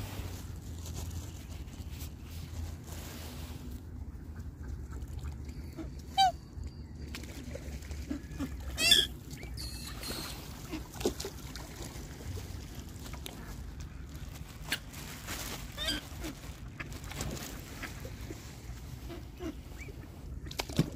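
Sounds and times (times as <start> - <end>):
swans calling: 4.1 - 6.6, 7.7 - 11.3, 15.6 - 20.4.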